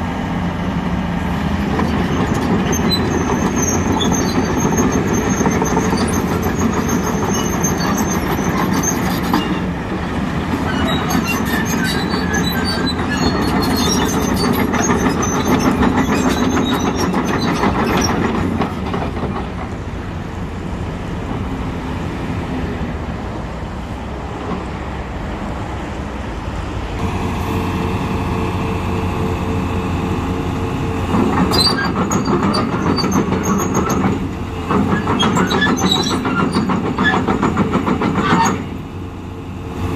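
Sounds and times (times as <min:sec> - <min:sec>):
excavator engine running: 0:00.0 - 0:39.9
steel tracks clanking and squealing: 0:01.4 - 0:20.2, 0:30.8 - 0:38.8
steady whine: 0:27.0 - 0:31.4.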